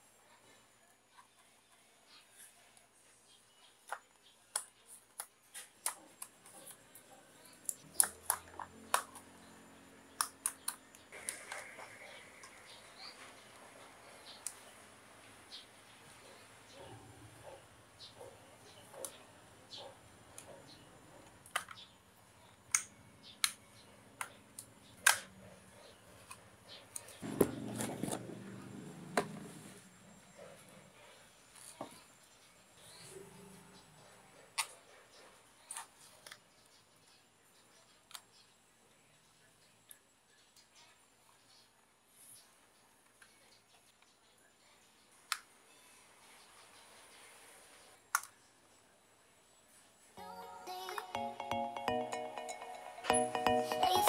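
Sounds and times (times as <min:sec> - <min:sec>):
sharp plastic clicks: 0:10.2 - 0:11.6, 0:24.2 - 0:25.3, 0:48.1 - 0:48.4.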